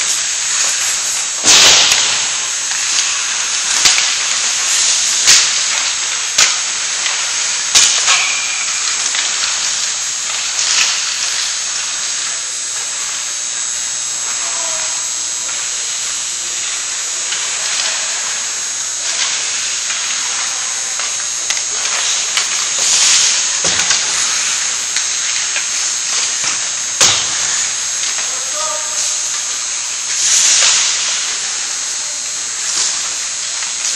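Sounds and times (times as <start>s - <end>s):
hockey sticks and pucks clacking: 0.0s - 9.8s
skate blades scraping ice: 15.8s - 33.9s.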